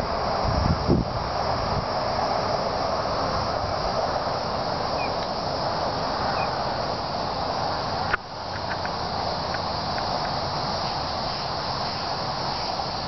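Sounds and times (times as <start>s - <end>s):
steady rushing noise: 0.0s - 13.0s
faint chirps: 5.0s - 5.2s.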